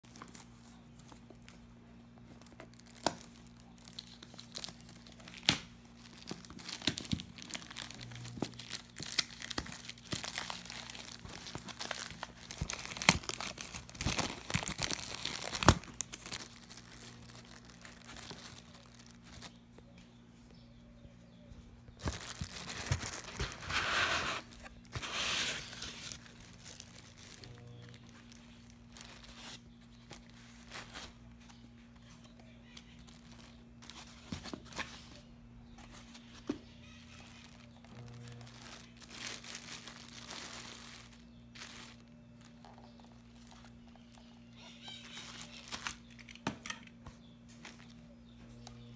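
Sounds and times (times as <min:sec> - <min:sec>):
plastic wrap and foam crinkling: 0:00.0 - 0:19.6, 0:21.9 - 0:35.2, 0:35.9 - 0:46.8
plastic bag tearing: 0:02.7 - 0:19.4, 0:37.1 - 0:42.1.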